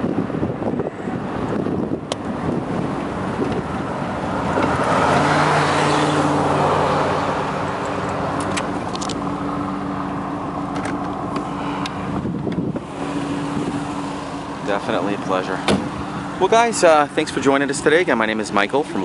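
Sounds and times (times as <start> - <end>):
wind rushing: 0.0 - 9.6, 11.2 - 14.7
car engine running: 0.0 - 19.0.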